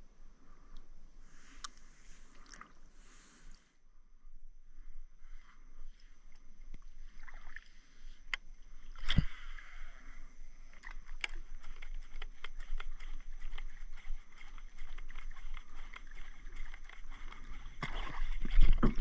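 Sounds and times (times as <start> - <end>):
water lapping against kayak hull: 6.8 - 19.0
small clicks and ticks: 10.6 - 19.0.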